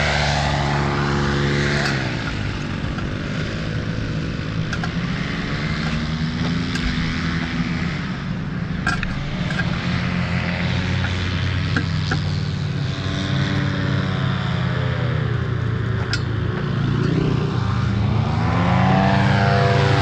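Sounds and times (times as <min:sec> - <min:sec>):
paramotor engine and propeller: 0:00.0 - 0:20.0.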